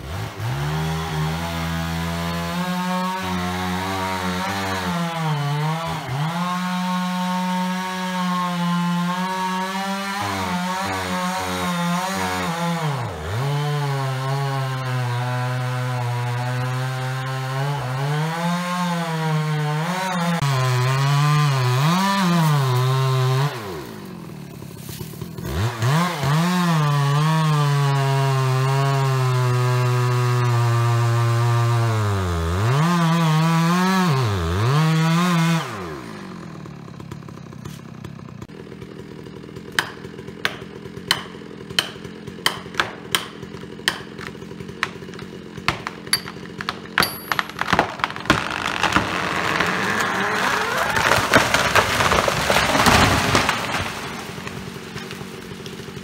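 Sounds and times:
chainsaw cutting tree: 0:00.0 - 0:56.0.

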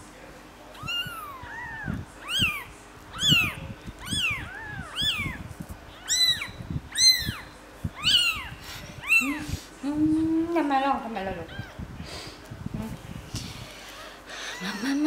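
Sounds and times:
kittens mewing: 0:00.8 - 0:09.7, 0:13.9 - 0:15.0.

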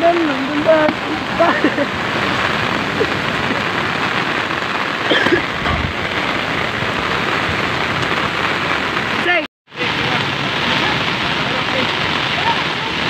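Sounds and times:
heavy rain pouring: 0:00.0 - 0:13.0
low thud: 0:05.6 - 0:06.3.

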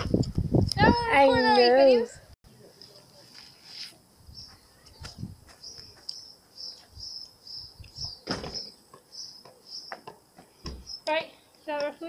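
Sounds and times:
bird chirping: 0:04.3 - 0:12.0.

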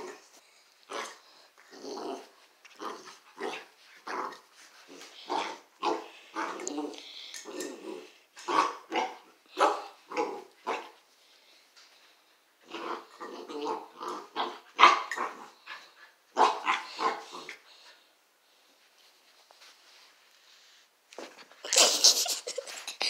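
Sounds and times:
puppy growling: 0:00.9 - 0:10.9, 0:12.6 - 0:15.7
puppy barking: 0:08.5 - 0:10.9, 0:14.4 - 0:15.3, 0:16.4 - 0:17.3.

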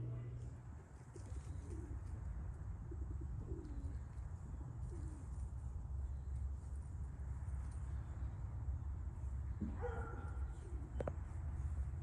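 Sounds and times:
doves cooing: 0:01.1 - 0:05.5, 0:10.2 - 0:11.2.

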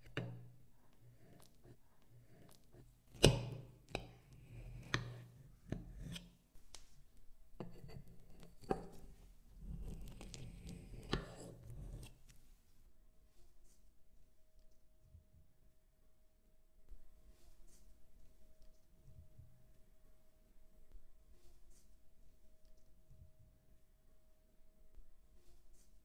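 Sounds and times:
knife cutting through cake: 0:04.3 - 0:06.3, 0:07.6 - 0:12.2.

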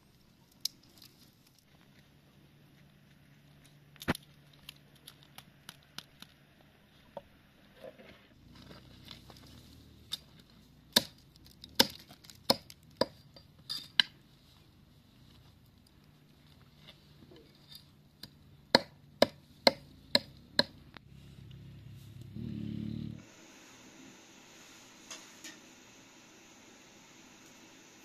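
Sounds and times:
dry stalks rustling: 0:08.4 - 0:13.0
blade chopping stems on wood: 0:10.9 - 0:13.2.

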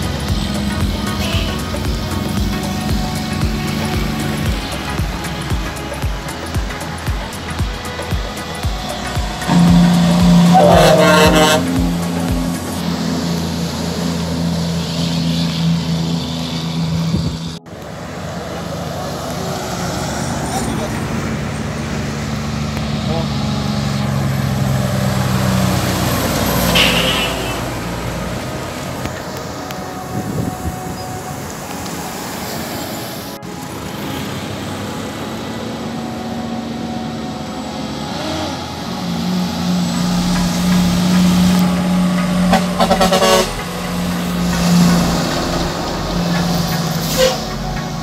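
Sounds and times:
trucks driving past: 0:00.0 - 0:48.0.

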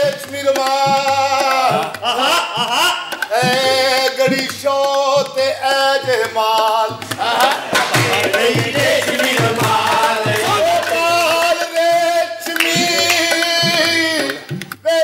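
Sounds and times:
hand drum beat: 0:00.0 - 0:15.0
man singing with held notes: 0:00.0 - 0:15.0.

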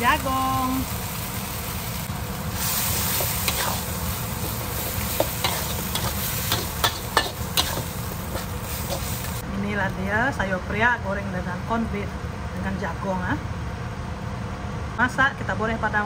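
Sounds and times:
food sizzling in hot oil: 0:00.0 - 0:09.4
metal spatula scraping wok: 0:02.4 - 0:09.4.

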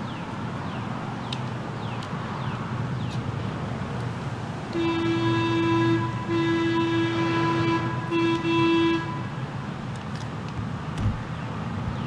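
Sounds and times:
horn blasts: 0:04.7 - 0:09.4.

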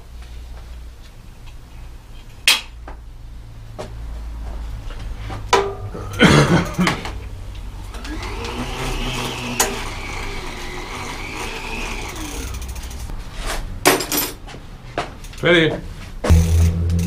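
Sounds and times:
bicycle wheel whirring: 0:07.7 - 0:13.1.

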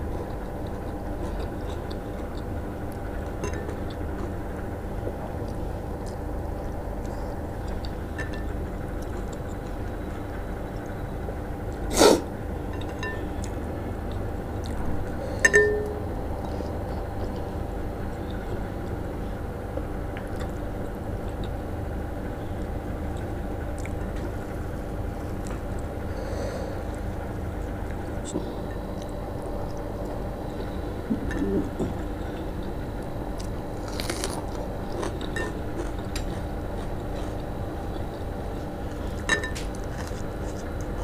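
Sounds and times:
steady background hum: 0:00.0 - 0:41.0.

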